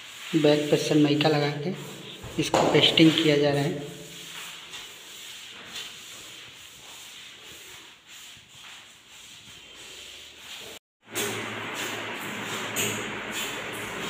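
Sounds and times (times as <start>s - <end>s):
hand rubbing laminate sheet: 0.0s - 10.8s.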